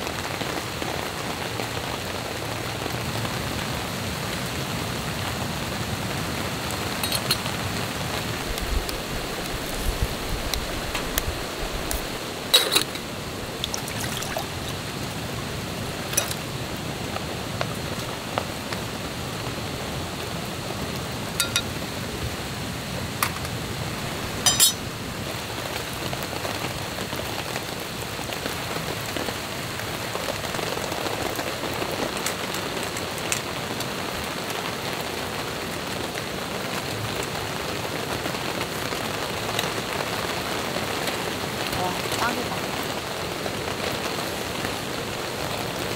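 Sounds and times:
rain on a tarp: 0:00.0 - 0:45.9
metal clinks of camping pot: 0:07.0 - 0:07.5, 0:12.5 - 0:14.4, 0:16.1 - 0:16.5, 0:21.4 - 0:21.8, 0:23.2 - 0:23.6, 0:24.3 - 0:24.9.

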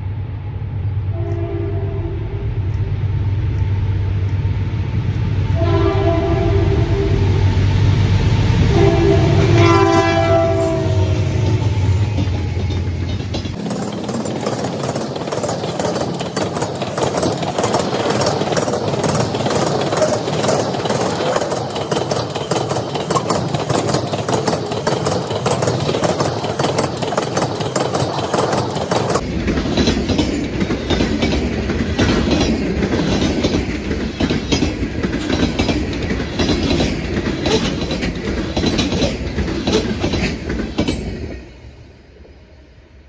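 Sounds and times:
freight train rumbling and rattling: 0:00.0 - 0:43.0
wheel clicks on rails: 0:12.2 - 0:41.1.

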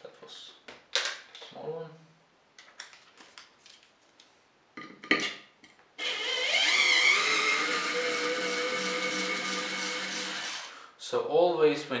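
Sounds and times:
handheld electric tool whining: 0:06.0 - 0:10.8.

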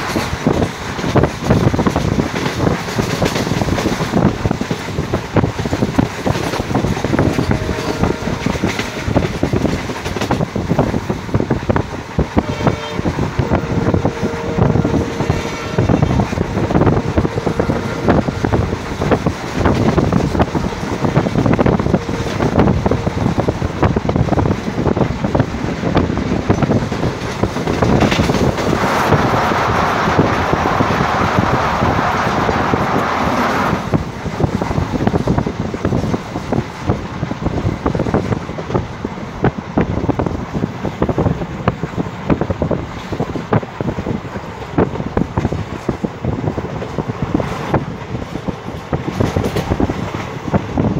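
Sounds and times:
train wheels rumbling on track: 0:00.0 - 0:50.9
loud rushing noise: 0:13.3 - 0:34.6.

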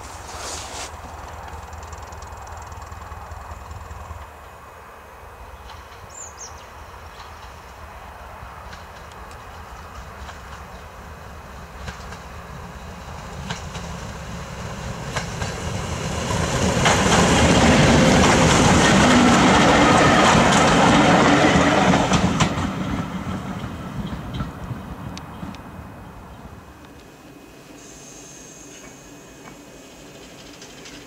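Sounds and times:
diesel train passing: 0:00.0 - 0:31.0
wheels clicking over rail joints: 0:01.0 - 0:04.3, 0:28.8 - 0:31.0.

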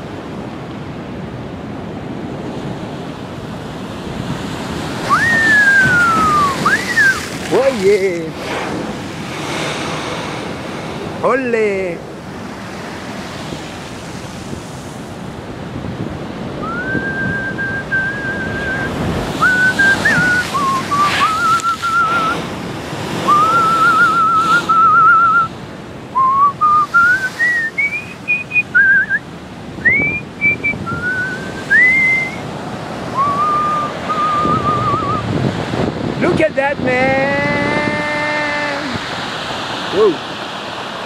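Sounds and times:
surf breaking: 0:03.4 - 0:25.5, 0:26.2 - 0:29.2, 0:29.8 - 0:36.5
person whistling a tune: 0:05.1 - 0:07.2, 0:16.6 - 0:22.4, 0:23.3 - 0:25.5, 0:26.2 - 0:29.2, 0:29.8 - 0:32.4, 0:33.2 - 0:35.3.

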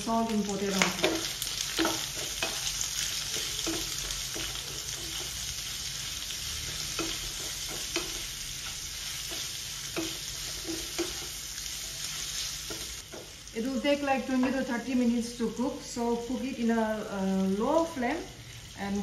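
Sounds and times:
meat sizzling in oil: 0:00.0 - 0:19.0
spatula scraping a pan: 0:00.8 - 0:13.2.

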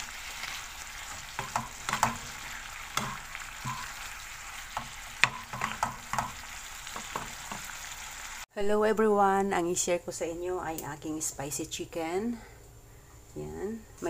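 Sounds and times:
chicken sizzling in a frying pan: 0:00.0 - 0:08.5
wooden spatula scraping pan: 0:00.4 - 0:04.0.

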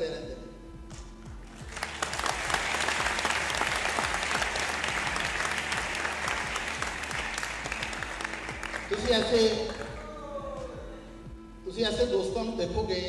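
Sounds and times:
audience applauding: 0:01.5 - 0:10.0.

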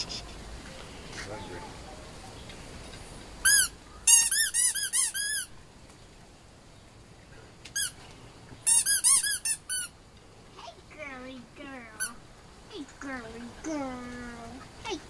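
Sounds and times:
squeaky dog toy squeaking: 0:03.4 - 0:05.6, 0:07.8 - 0:08.0, 0:08.6 - 0:09.9.

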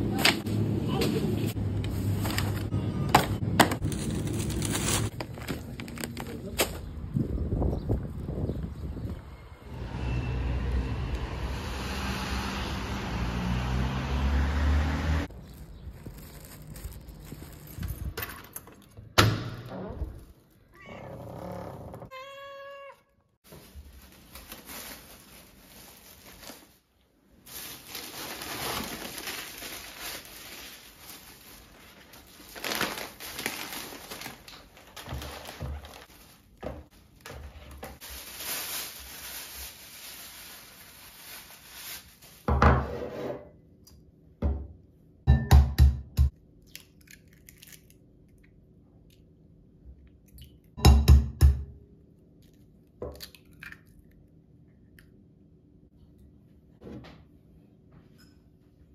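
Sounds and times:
plastic bag rustling: 0:03.6 - 0:06.9, 0:15.2 - 0:18.2, 0:23.4 - 0:42.6.

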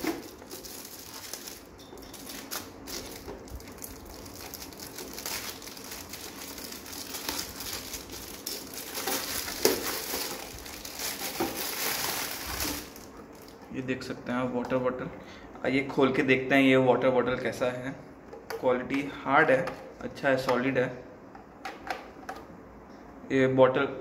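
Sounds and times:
plastic wrap crinkling: 0:00.0 - 0:13.7.

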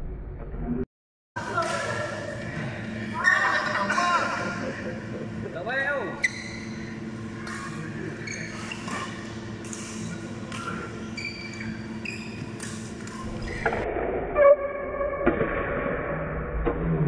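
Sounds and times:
shoes squeaking on court floor: 0:06.2 - 0:13.8.

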